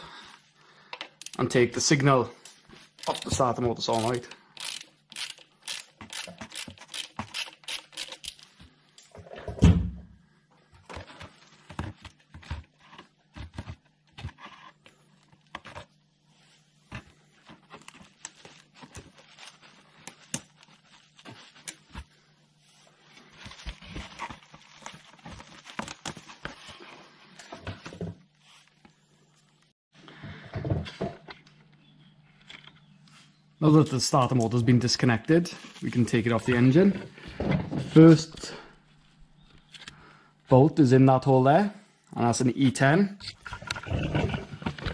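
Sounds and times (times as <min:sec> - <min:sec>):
small metal clicks and rattles: 0:02.4 - 0:03.4, 0:04.0 - 0:09.1
ratchet clicking: 0:04.0 - 0:08.5.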